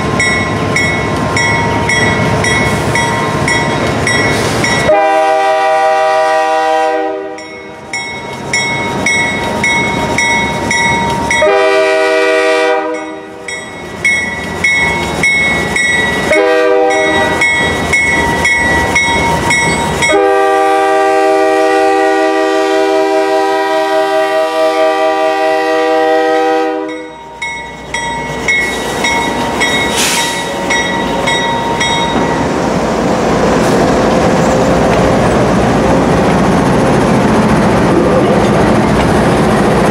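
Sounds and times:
train wheel clatter: 0:00.0 - 0:05.2, 0:07.4 - 0:11.9, 0:13.0 - 0:20.3, 0:27.0 - 0:39.9
locomotive engine noise: 0:00.0 - 0:23.4, 0:24.2 - 0:39.9
bell dinging: 0:00.2 - 0:04.9, 0:07.4 - 0:11.5, 0:13.0 - 0:20.2, 0:26.9 - 0:32.5
train horn blasts: 0:04.8 - 0:07.5, 0:11.3 - 0:13.5, 0:16.3 - 0:17.4, 0:20.0 - 0:27.1.

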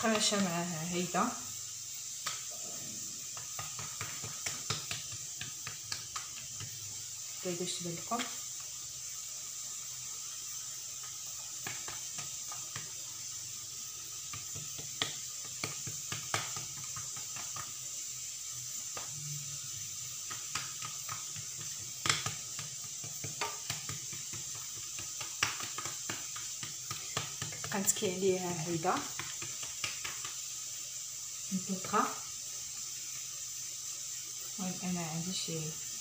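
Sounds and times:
background hiss: 0:00.0 - 0:36.0
fingers tapping on stone: 0:03.2 - 0:06.8, 0:20.2 - 0:27.9.

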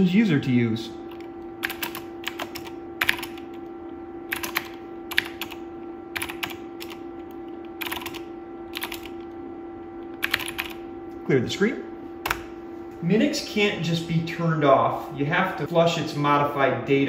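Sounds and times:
faint steady hum: 0:00.0 - 0:17.0
keyboard typing: 0:01.1 - 0:10.8.

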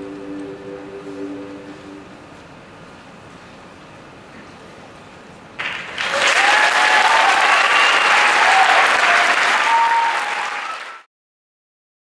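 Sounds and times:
audience applauding: 0:05.6 - 0:11.1
voices cheering: 0:05.9 - 0:11.0.

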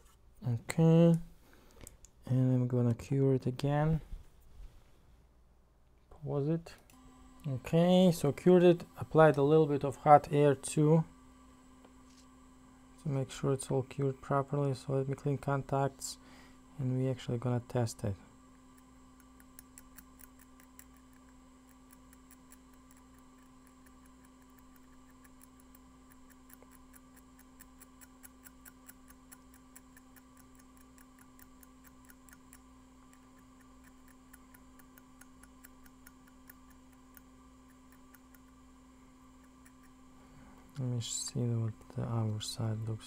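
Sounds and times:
steady electrical hum: 0:00.0 - 0:43.0
small tool ticking and scratching: 0:18.7 - 0:38.6, 0:39.4 - 0:40.0.

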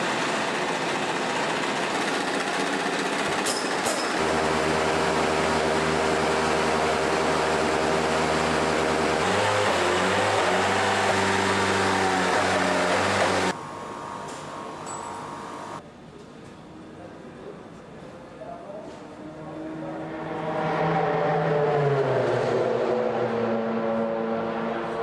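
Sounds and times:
race car engine drone: 0:04.2 - 0:13.6, 0:19.2 - 0:25.0.

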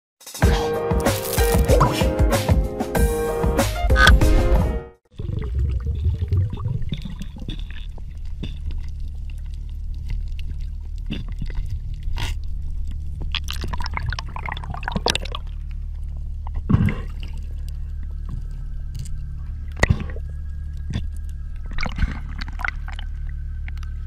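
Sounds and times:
clicks and crackles: 0:01.1 - 0:01.8, 0:06.2 - 0:14.3, 0:14.9 - 0:24.0
low underwater rumble: 0:05.1 - 0:24.0.

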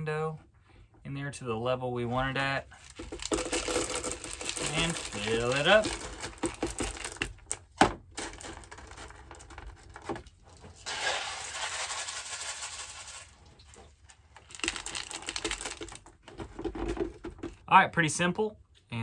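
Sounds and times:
clay pebbles rattling into planter: 0:02.7 - 0:17.7
pebbles clicking and knocking: 0:02.7 - 0:17.7.

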